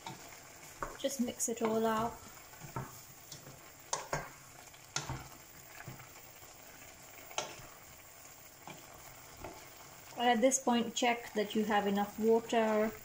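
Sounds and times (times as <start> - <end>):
faint sizzle of cooking: 0.0 - 13.0
spoon stirring food in pan: 0.0 - 13.0
spoon knocking against pan: 2.6 - 4.3.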